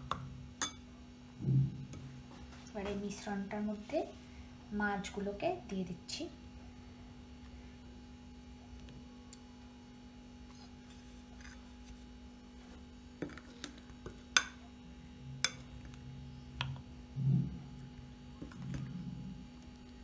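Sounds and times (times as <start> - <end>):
steady electrical hum: 0.0 - 20.0
metal spoon clinking on ceramic bowl: 0.6 - 0.8.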